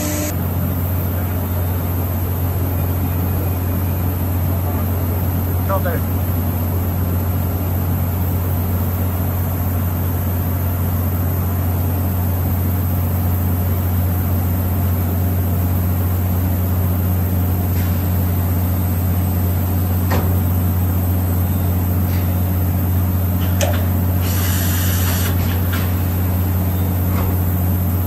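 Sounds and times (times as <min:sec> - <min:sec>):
machine low hum: 0:00.0 - 0:00.5.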